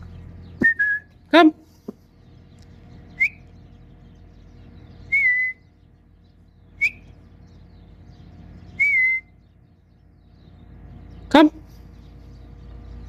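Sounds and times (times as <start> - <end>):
person whistling: 0.6 - 1.1, 5.1 - 5.6, 8.8 - 9.3.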